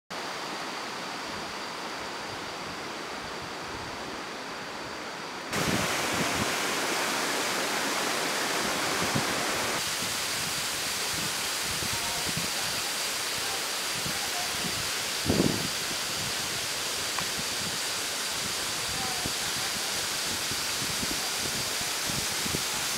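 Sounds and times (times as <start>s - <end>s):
fast river rushing: 0.2s - 22.9s
waterfall pouring: 5.5s - 22.9s.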